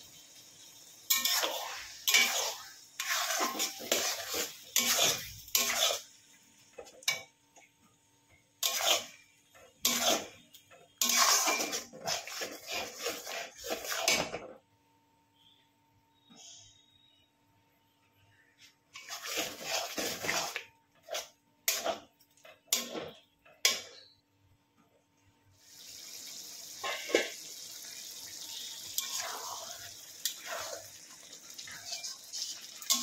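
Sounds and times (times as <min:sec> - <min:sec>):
metal utensils scraping cookware: 0:01.1 - 0:06.1, 0:08.6 - 0:14.5, 0:18.9 - 0:22.1, 0:31.8 - 0:33.0.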